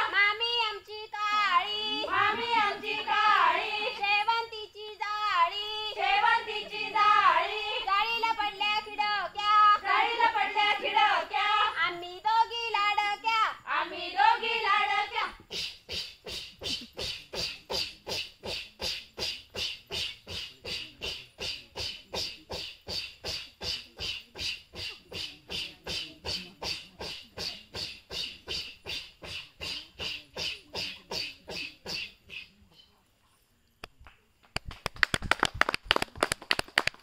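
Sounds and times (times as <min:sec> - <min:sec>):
rhythmic blowing breath sounds: 0:15.4 - 0:32.6
sharp hand claps: 0:33.8 - 0:37.0.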